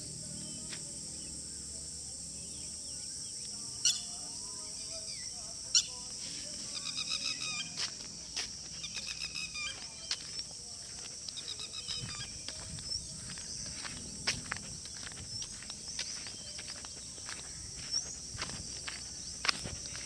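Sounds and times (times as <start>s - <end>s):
high drone of insects: 0.0s - 20.0s
footsteps on sandy ground: 0.3s - 1.0s, 5.0s - 20.0s.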